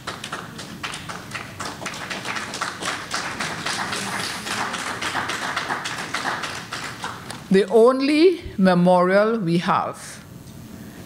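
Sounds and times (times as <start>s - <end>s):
small audience clapping: 0.0s - 7.5s.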